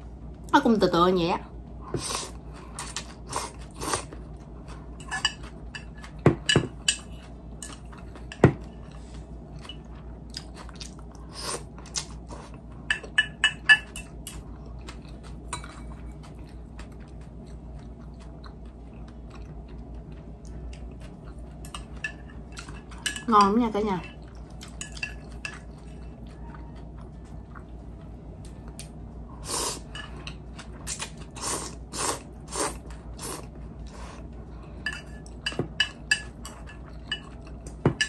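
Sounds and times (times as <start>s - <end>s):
person slurping and chewing noodles: 2.0s - 6.2s, 29.4s - 34.3s.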